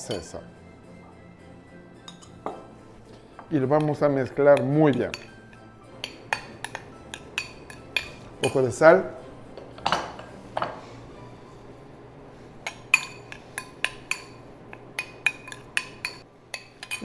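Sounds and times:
metal spoon clinking glass bowl: 0:02.0 - 0:02.5, 0:03.8 - 0:08.7, 0:12.6 - 0:17.0.

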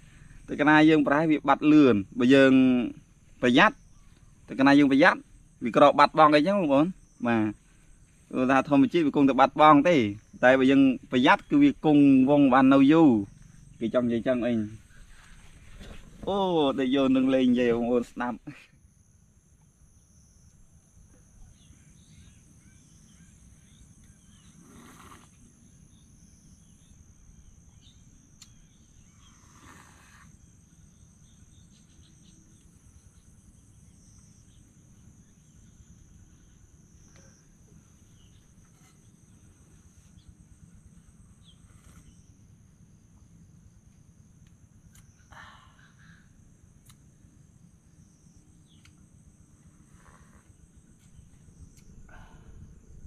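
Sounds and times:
insects trilling: 0:00.0 - 0:53.0
low background rumble: 0:50.5 - 0:53.0.

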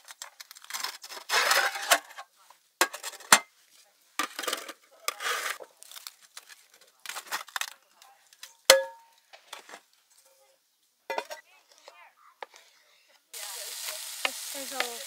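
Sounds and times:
cookware scraping and clattering: 0:00.9 - 0:03.5, 0:04.2 - 0:05.7, 0:11.1 - 0:12.8.

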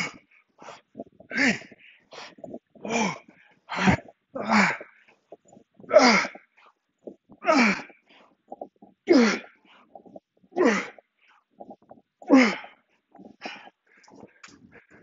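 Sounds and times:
man grunting exhalations: 0:01.3 - 0:01.8.

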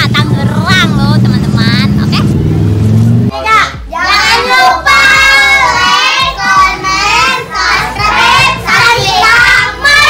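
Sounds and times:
boys singing in unison: 0:03.9 - 0:10.0.

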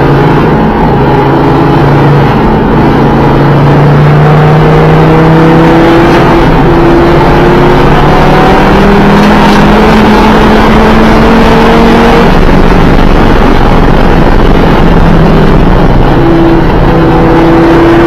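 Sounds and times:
car engine revving: 0:00.0 - 0:18.0.

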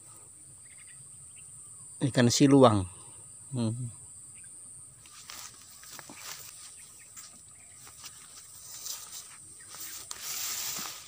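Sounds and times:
insects chirring: 0:00.0 - 0:11.0
faint clicks and rustles: 0:05.0 - 0:11.0.

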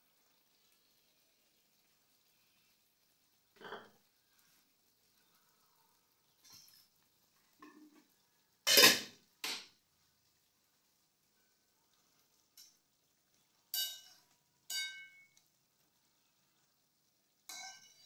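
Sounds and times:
metal spatula scraping in wok: 0:06.4 - 0:06.9.

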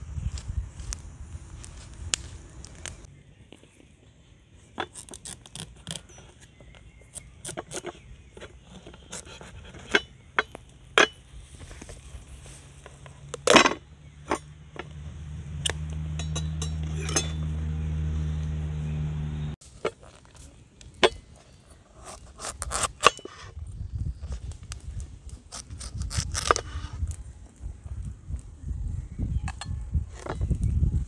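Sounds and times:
utensils knocking on board and metal: 0:16.1 - 0:17.5.

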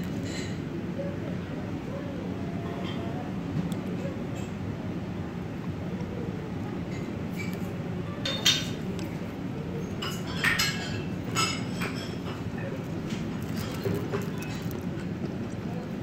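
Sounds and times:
low background hum: 0:00.0 - 0:16.0
chopsticks clinking on ceramic bowl: 0:10.0 - 0:15.6.

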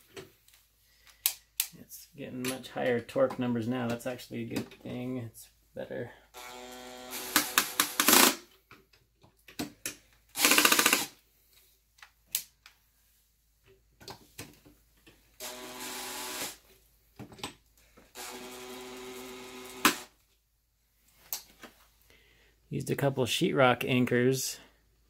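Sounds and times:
screwdriver ratcheting: 0:07.1 - 0:08.4, 0:10.4 - 0:11.1
driver buzzing: 0:15.4 - 0:16.6, 0:18.1 - 0:20.1.

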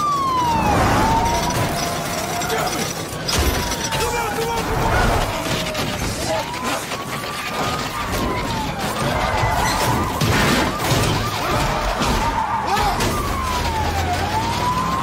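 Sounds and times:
police sirens wailing: 0:00.0 - 0:15.0
door crashing on road: 0:07.2 - 0:14.6.

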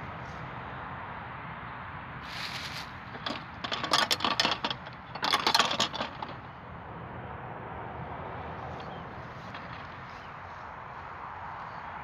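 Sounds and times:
bicycle rolling hiss: 0:02.2 - 0:03.0
rapid irregular clicking: 0:03.1 - 0:06.6.

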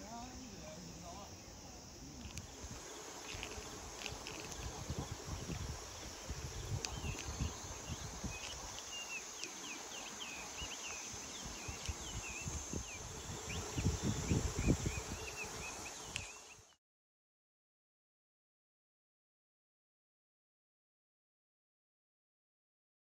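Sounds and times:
high insect hiss: 0:00.0 - 0:16.8
wind buffeting microphone: 0:02.2 - 0:16.6
birds chirping and whistling: 0:04.3 - 0:16.7.

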